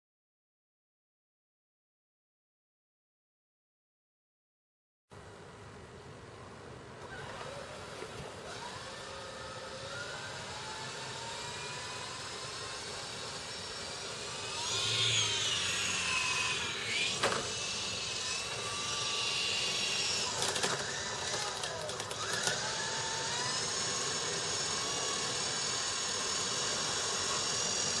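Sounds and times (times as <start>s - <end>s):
rc helicopter rotors whining: 7.0s - 28.0s.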